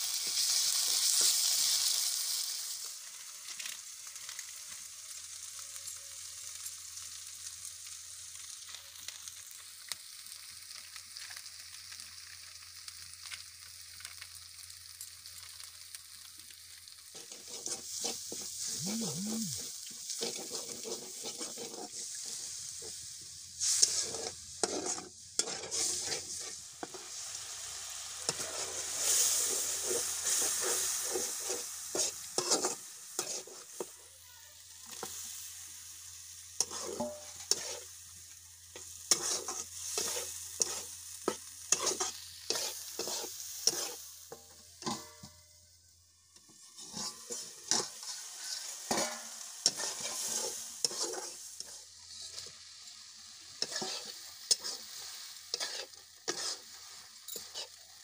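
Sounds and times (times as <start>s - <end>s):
spices sizzling in oil: 0.0s - 58.0s
metal spatula scraping wok: 17.1s - 34.0s, 36.6s - 38.0s, 38.7s - 45.4s, 46.4s - 57.8s.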